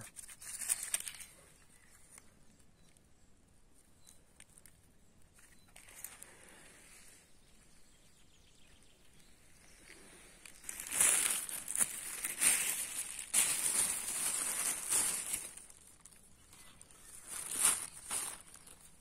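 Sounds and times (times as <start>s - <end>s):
plastic bag crinkling: 0.0s - 1.4s, 10.4s - 19.0s.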